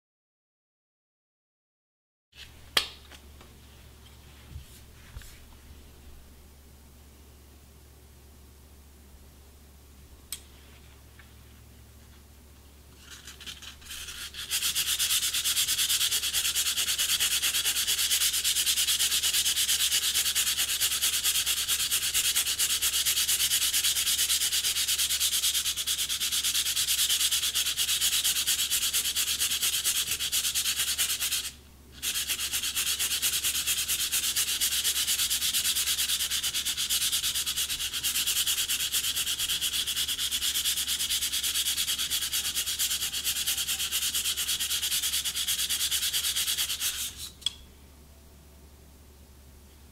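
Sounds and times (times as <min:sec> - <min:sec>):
sandpaper rasping on reed: 0:13.3 - 0:47.4.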